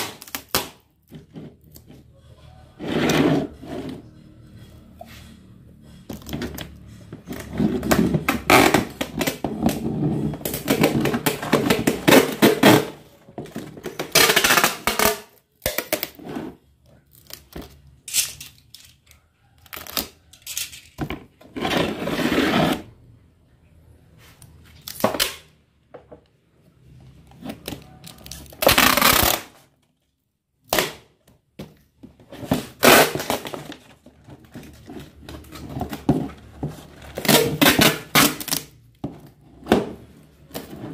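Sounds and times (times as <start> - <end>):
packing tape ripping off roll: 0.0 - 0.9, 28.2 - 29.7, 32.6 - 33.8, 37.2 - 38.7.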